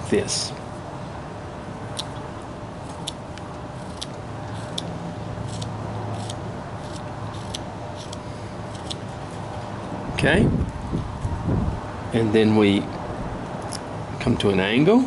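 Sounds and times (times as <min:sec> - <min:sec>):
low background hum: 0:00.0 - 0:15.0
knife whittling wood: 0:03.8 - 0:09.1.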